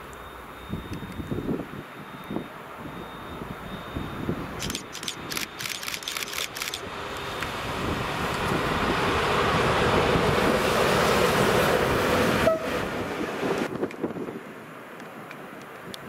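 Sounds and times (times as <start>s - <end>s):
diesel locomotive engine: 0.0s - 16.0s
rail-joint clicks: 4.6s - 7.6s.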